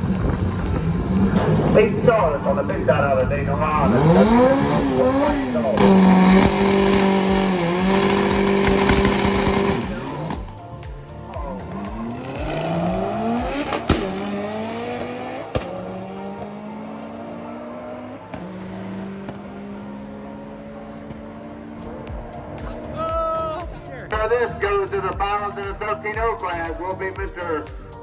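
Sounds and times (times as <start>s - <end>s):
drag racing car engine revving: 0.0s - 10.6s, 11.5s - 22.9s.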